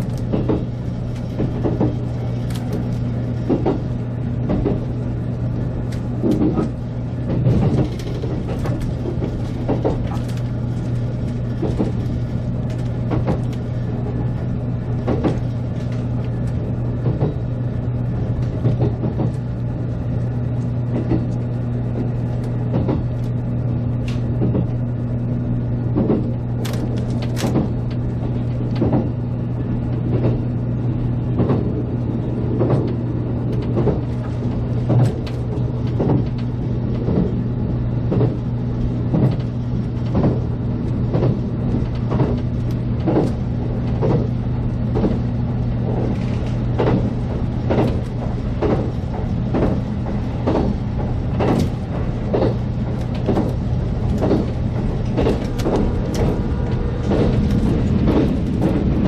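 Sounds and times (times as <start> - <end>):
wheels clacking on track: 0.0 - 19.7, 25.9 - 29.2, 31.3 - 59.0
train running hum: 0.0 - 59.0.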